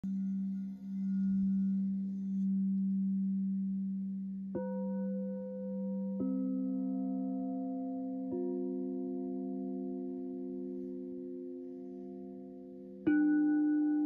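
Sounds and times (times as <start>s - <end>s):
low singing bowl tone: 0.0s - 14.0s.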